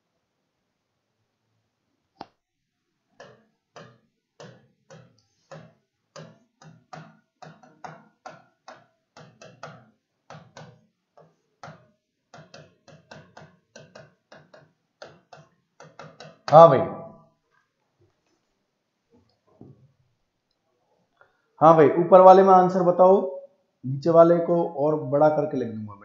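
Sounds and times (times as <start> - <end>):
marker writing on whiteboard: 3.2 - 16.6.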